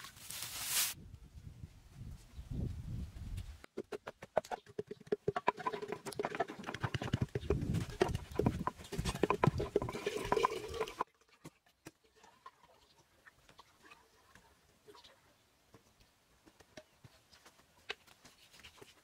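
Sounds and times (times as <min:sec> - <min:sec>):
pestle pounding in ceramic pot: 0:03.8 - 0:10.5.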